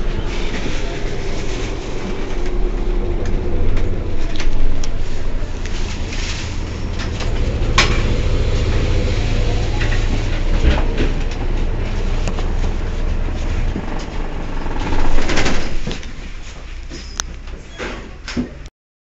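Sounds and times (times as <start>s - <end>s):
bus engine and road rumble: 0.0s - 18.7s
rushing burst: 5.0s - 11.1s, 14.2s - 16.1s.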